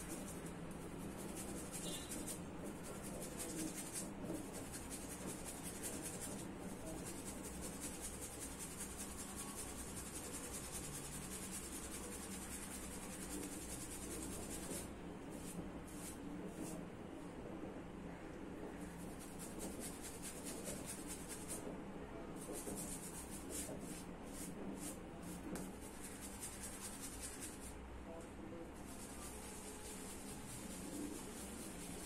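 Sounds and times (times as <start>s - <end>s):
shaving brush scrubbing lather: 28.9s - 32.0s.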